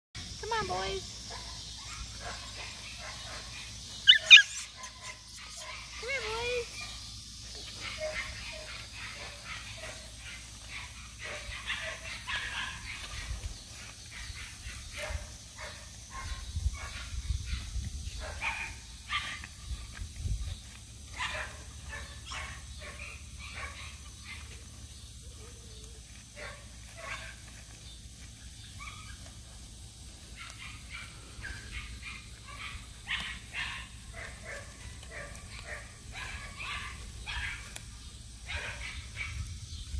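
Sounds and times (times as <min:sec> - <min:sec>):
puppies yipping and whimpering: 0:01.8 - 0:06.9.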